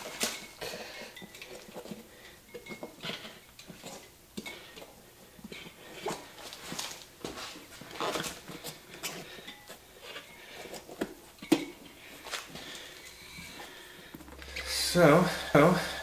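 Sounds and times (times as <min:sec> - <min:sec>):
rubber tire scuffs and squeaks: 0:06.1 - 0:08.7.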